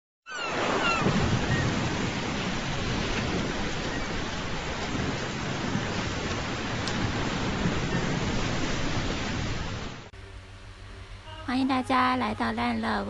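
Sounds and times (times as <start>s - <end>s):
high-pitched falling calls: 0.2s - 1.8s
rushing water: 0.3s - 10.1s.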